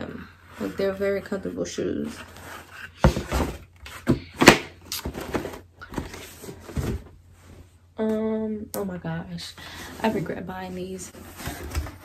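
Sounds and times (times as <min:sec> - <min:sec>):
cardboard box knocks and thumps: 0:03.0 - 0:07.2.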